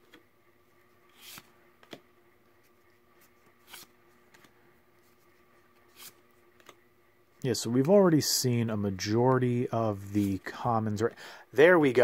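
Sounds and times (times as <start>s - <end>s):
cards sliding against each other: 1.1s - 2.0s, 2.6s - 6.8s.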